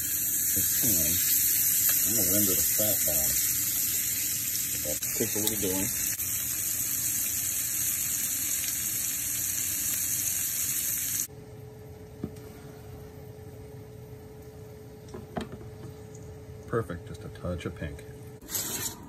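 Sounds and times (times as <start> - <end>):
meat sizzling in a skillet: 0.0 - 11.3.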